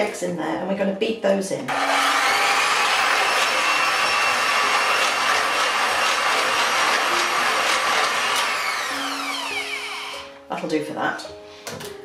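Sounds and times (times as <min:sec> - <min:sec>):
electric hand mixer whisking: 0:01.7 - 0:10.3.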